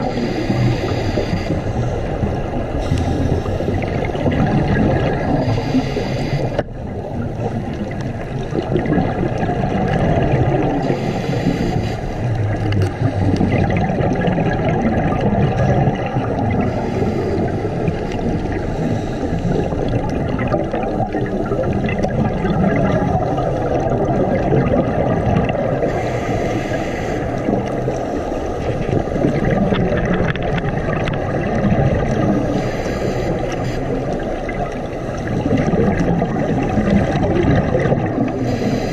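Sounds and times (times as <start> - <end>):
scuba regulator breathing: 0.0 - 8.0, 10.6 - 14.0, 15.9 - 21.8, 25.6 - 30.7, 32.0 - 37.2, 38.2 - 38.9
underwater bubbles: 0.0 - 38.9.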